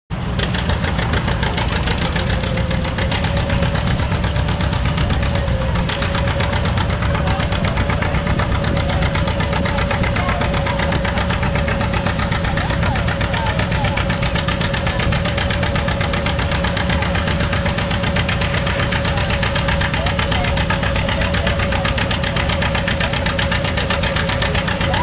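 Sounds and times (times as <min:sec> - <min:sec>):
tractor engine popping exhaust: 0:00.1 - 0:25.0
steady whine: 0:00.4 - 0:25.0.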